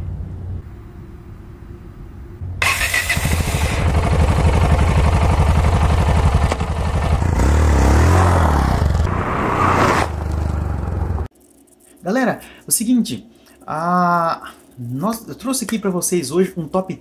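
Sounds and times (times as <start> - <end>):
motorcycle engine thumping and revving: 2.6 - 11.3.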